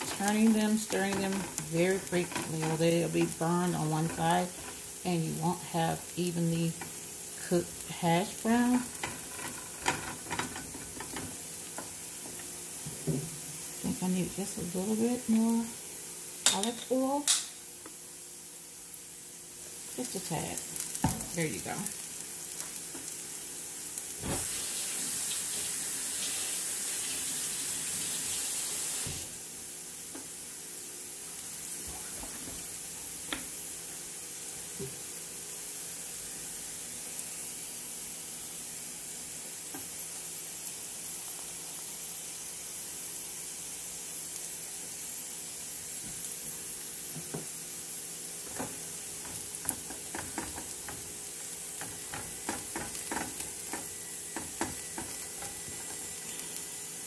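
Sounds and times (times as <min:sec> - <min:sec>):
spatula scraping a pan: 0:00.0 - 0:05.7, 0:08.6 - 0:11.4
potatoes sizzling in oil: 0:00.0 - 0:57.0.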